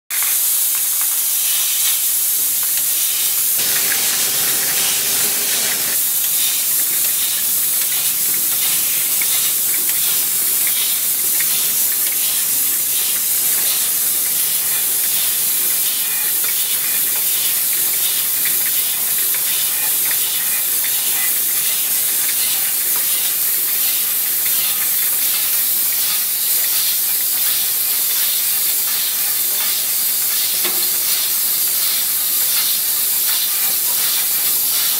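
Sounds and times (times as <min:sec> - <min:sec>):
bottle filling machine hissing: 0:03.3 - 0:25.5, 0:26.2 - 0:34.9.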